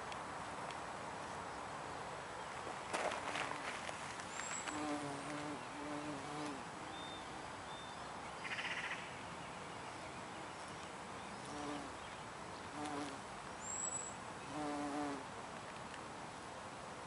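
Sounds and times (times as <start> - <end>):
bumblebee buzzing: 4.6 - 6.7, 11.4 - 12.0, 12.7 - 13.2, 14.5 - 15.2.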